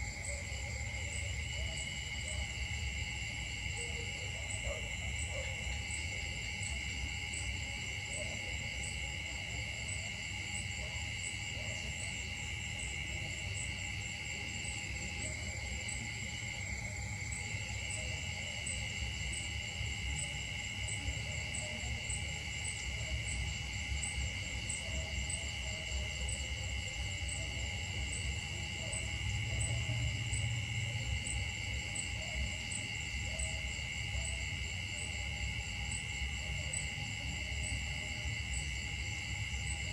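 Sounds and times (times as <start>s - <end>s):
insects chorus: 0.0s - 39.9s.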